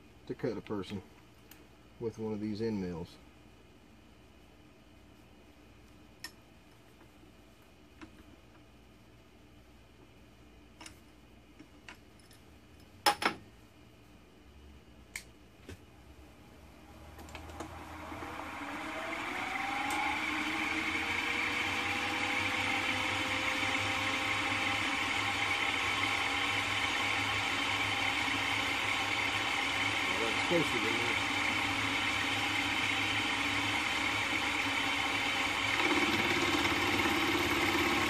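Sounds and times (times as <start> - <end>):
milling machine motor whining: 16.9 - 38.0.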